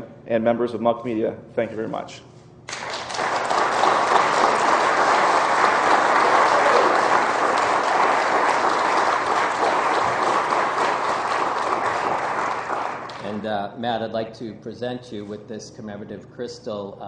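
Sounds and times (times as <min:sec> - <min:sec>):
audience applauding: 0:02.7 - 0:13.4.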